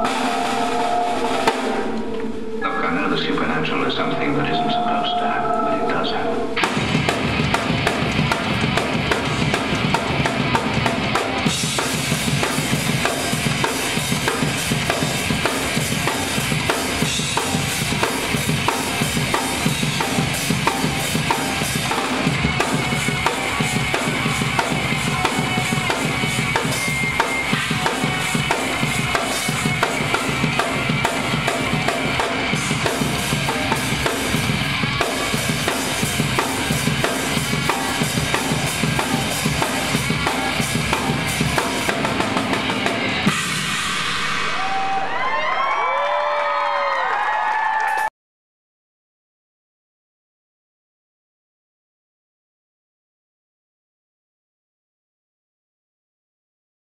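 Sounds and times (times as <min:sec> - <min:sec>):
drum kit playing: 0:00.0 - 0:05.0, 0:06.6 - 0:45.3.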